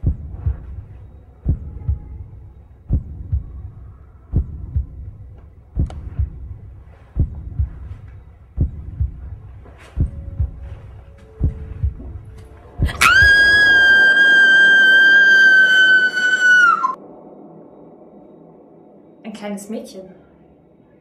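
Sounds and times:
heartbeat-like thumping: 0.0s - 13.7s.

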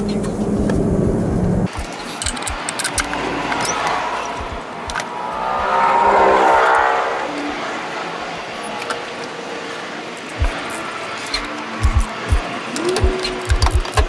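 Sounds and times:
vehicle passing: 1.7s - 10.2s.

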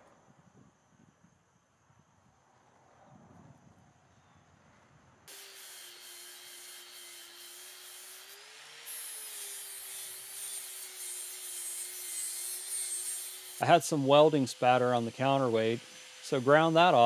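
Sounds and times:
angle grinder grinding steel: 5.3s - 17.0s.

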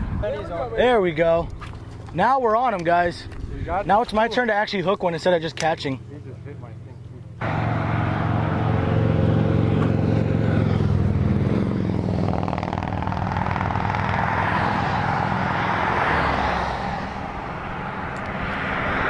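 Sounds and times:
vehicle engine running: 5.9s - 15.9s.

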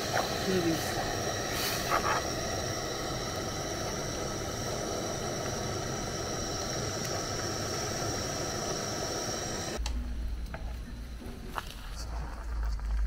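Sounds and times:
motor running with high whine: 0.0s - 9.8s.

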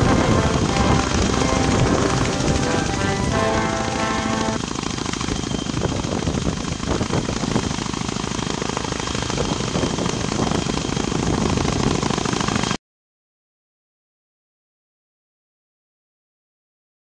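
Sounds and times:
helicopter rotors chopping: 0.0s - 12.8s.

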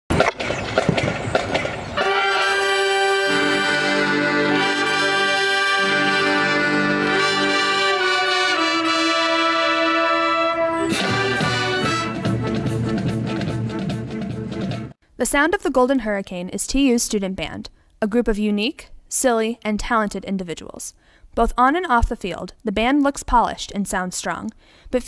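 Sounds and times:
brass section playing held chords: 2.0s - 14.6s.

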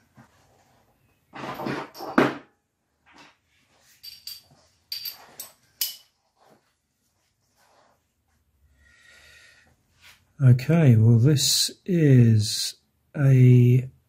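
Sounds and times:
metal tools rattling: 3.9s - 6.2s
metallic clinks: 4.0s - 6.1s.

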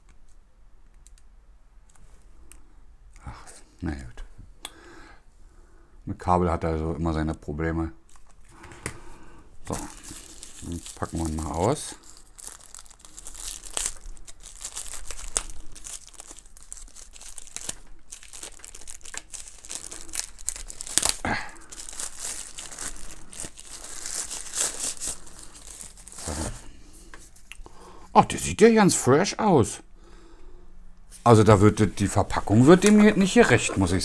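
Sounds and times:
plastic bag crinkling and tearing: 8.1s - 8.6s, 9.6s - 26.7s.

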